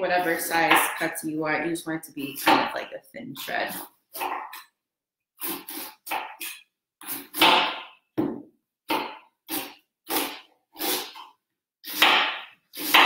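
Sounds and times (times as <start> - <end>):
knife slicing cabbage on wood: 5.4 - 8.0, 11.9 - 13.0.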